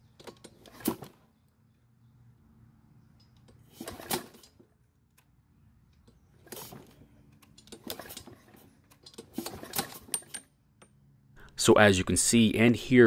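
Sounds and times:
mower engine pull-start rattling: 0:03.2 - 0:04.7, 0:06.1 - 0:10.5.

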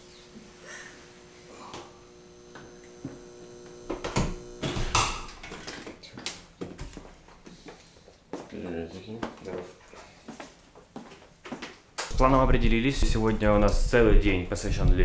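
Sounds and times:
steady electrical hum: 0:00.0 - 0:09.9, 0:11.8 - 0:15.0.

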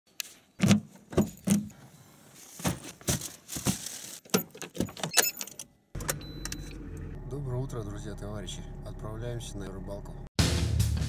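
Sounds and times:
handling knocks and rustles: 0:00.6 - 0:05.6.

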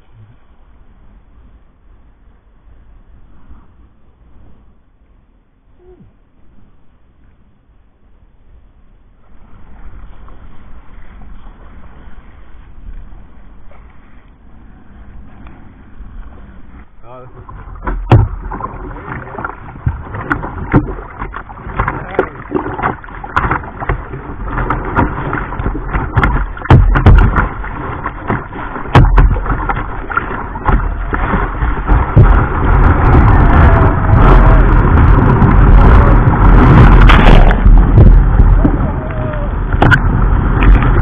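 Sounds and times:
kayak paddle splashing: 0:09.2 - 0:41.0
surf breaking: 0:09.3 - 0:41.0
water slapping plastic hull: 0:17.2 - 0:41.0.

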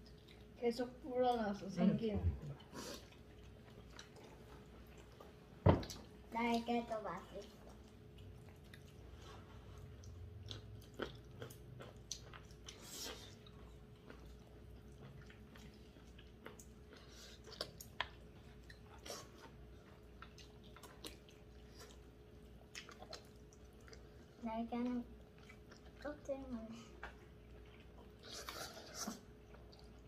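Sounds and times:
chewing and slurping noodles: 0:02.6 - 0:06.0, 0:07.2 - 0:24.4, 0:27.0 - 0:30.0.

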